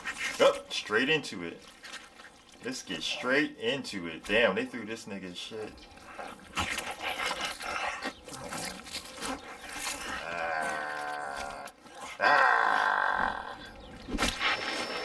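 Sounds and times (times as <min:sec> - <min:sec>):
zombie snarling: 0:10.0 - 0:13.7.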